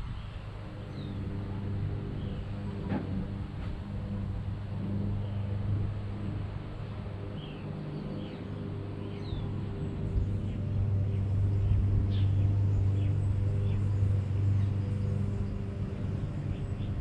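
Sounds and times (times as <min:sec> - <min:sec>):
low mechanical hum: 0:00.0 - 0:17.0.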